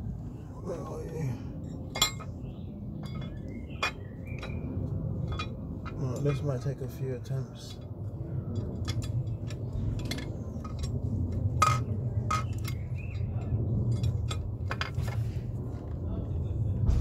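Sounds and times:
steady low hum: 0.0 - 17.0.

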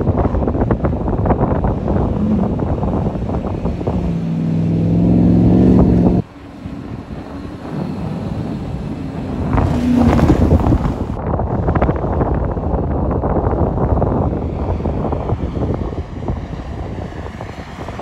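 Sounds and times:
wind noise: 0.0 - 18.0
truck engine revving hard: 0.9 - 11.2
another engine revving: 1.6 - 6.3, 7.6 - 11.2.

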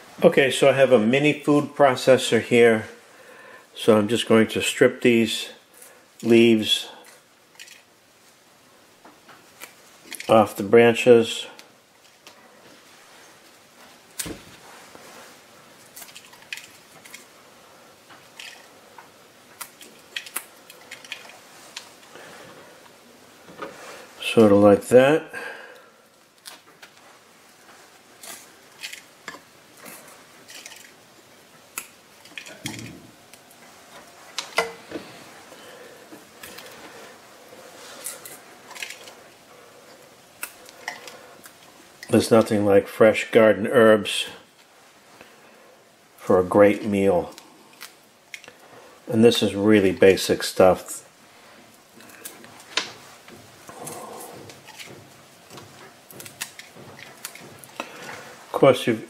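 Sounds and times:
herb leaves rustling as stripped: 9.4 - 17.4, 26.1 - 42.6, 46.8 - 59.0.

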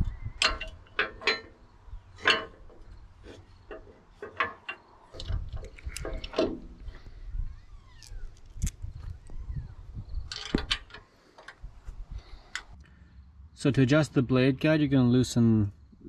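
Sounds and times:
metal clinks and knocks: 0.2 - 6.9, 10.2 - 11.6.

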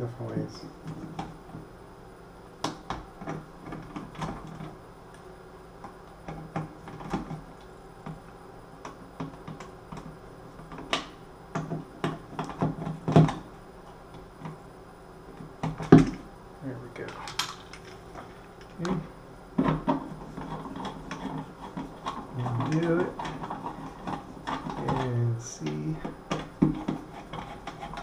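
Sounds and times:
screwdriver clicking and scraping: 20.0 - 28.0.

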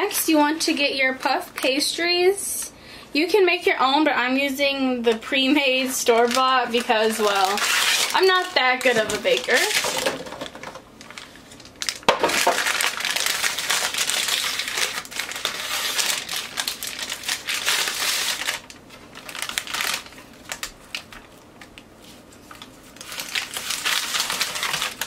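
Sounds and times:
paper wrapping crinkling: 5.4 - 25.0.

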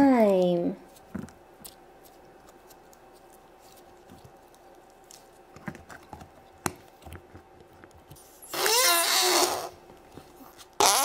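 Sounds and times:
sticky slime squishing: 0.1 - 8.3.

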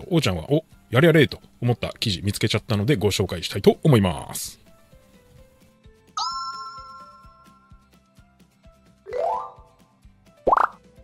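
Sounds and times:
faint background music with beat: 3.4 - 6.2, 7.0 - 11.0.

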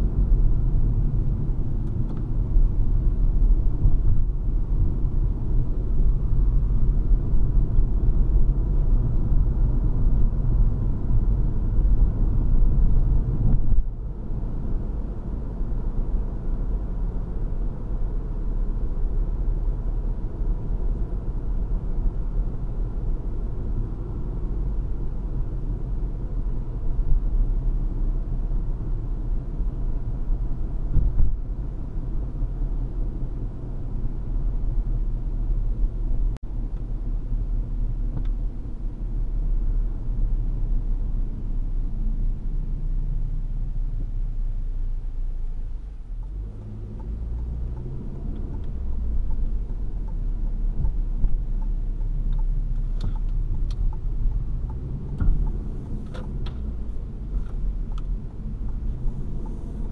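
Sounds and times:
car engine rumble: 0.0 - 59.9
tyre and road noise: 45.1 - 59.9.

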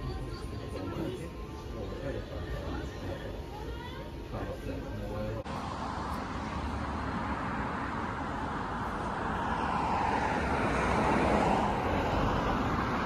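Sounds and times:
tyres rushing on road: 5.4 - 13.0.

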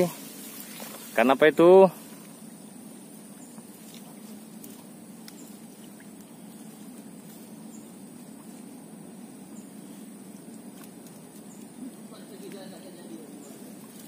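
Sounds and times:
grass stems rustling: 0.0 - 14.0
high insect whine: 0.0 - 14.0
low outdoor hum: 0.0 - 14.0.

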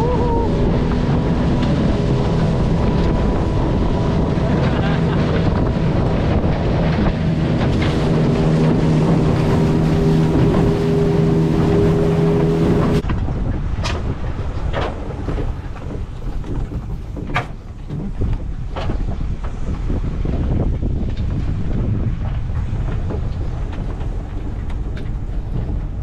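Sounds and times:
boat motor running: 0.0 - 26.0
wind buffeting microphone: 0.0 - 26.0.

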